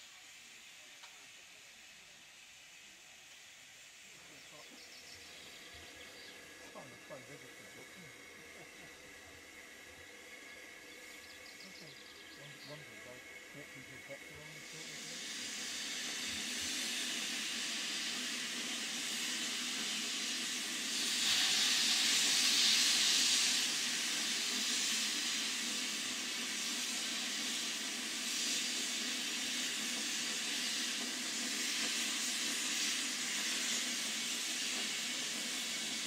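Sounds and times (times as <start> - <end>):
steam locomotive hissing: 0.0 - 36.0.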